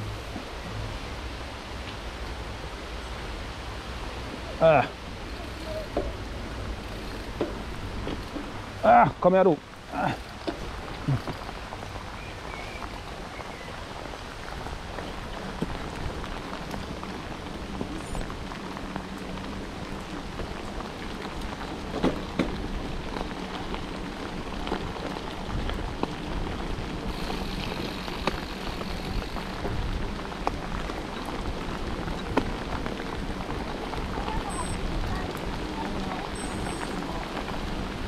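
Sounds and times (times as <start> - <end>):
tyres hissing on wet road: 0.0 - 38.0
bike knocking over bumps: 7.3 - 8.6, 21.9 - 23.3.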